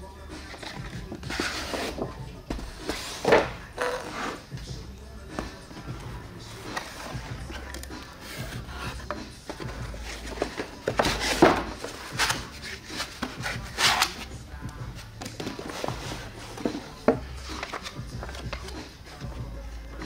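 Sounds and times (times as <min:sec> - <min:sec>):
background music with bass: 0:00.0 - 0:20.0
cardboard and foam packaging handled: 0:00.4 - 0:19.4
paper rustling: 0:05.4 - 0:14.3, 0:15.2 - 0:19.2.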